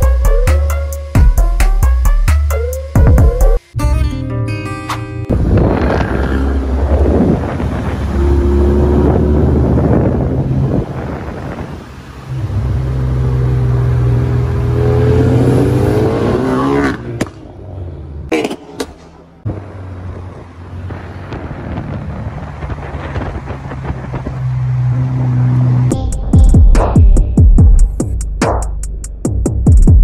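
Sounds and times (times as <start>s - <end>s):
exhaust cracks: 5.3s - 12.0s, 20.8s - 24.5s
car engine accelerating hard: 5.3s - 18.3s, 19.4s - 25.9s.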